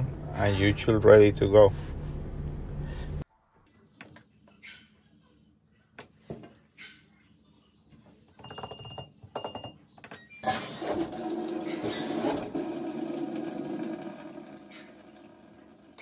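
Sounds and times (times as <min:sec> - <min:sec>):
water rushing into tub: 0:10.5 - 0:16.0.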